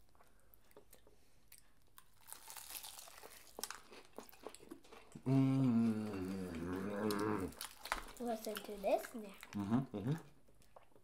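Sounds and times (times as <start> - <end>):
fried chicken crunching: 2.0 - 5.2
person humming: 5.2 - 7.5, 9.6 - 10.2.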